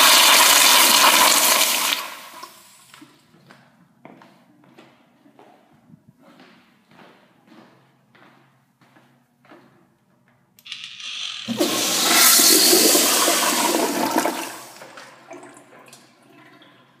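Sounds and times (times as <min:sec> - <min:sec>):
toilet flushing: 0:00.0 - 0:02.9, 0:10.7 - 0:17.0.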